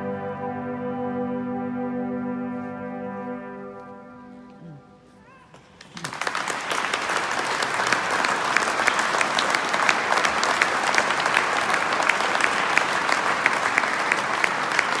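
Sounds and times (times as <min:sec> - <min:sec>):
audience applauding: 0:05.5 - 0:15.0.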